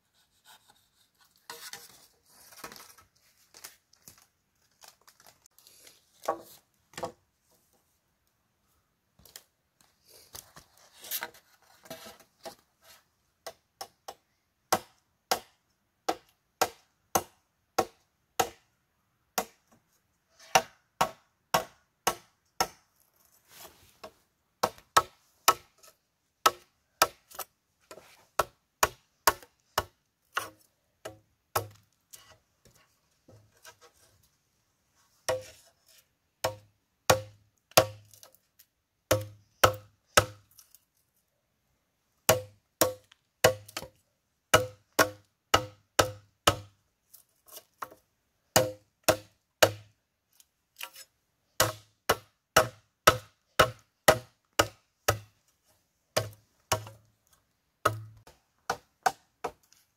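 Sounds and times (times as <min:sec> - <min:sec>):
rustling and scraping: 0:00.0 - 0:06.7, 0:09.9 - 0:13.1, 0:23.0 - 0:24.3
tool striking bamboo: 0:13.4 - 0:18.6, 0:20.4 - 0:22.8, 0:24.0 - 0:25.8, 0:26.4 - 0:31.8, 0:36.4 - 0:38.3, 0:39.1 - 0:40.5, 0:42.3 - 0:46.7, 0:48.6 - 0:49.9, 0:51.6 - 0:55.4, 0:56.2 - 0:57.0, 0:57.8 - 0:59.6.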